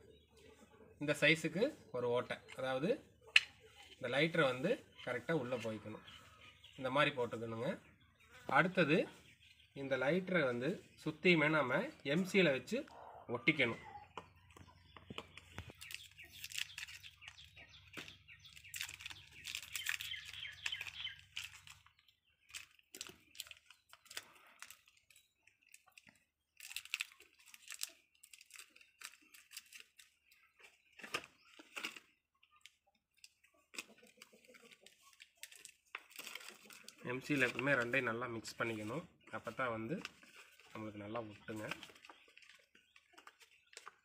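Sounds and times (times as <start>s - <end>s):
wrapper crinkling and tearing: 15.7s - 17.4s, 18.5s - 30.3s, 33.2s - 37.7s.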